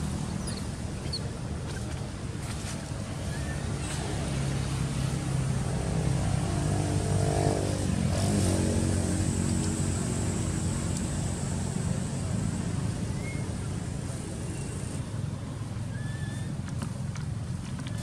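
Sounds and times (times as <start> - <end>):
vehicle engine running: 3.9 - 15.0.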